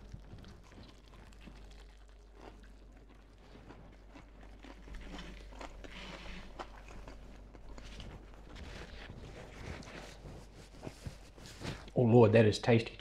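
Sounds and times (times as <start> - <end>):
crunchy biting and chewing: 0.0 - 10.2
crispy coating crackling: 0.0 - 12.2.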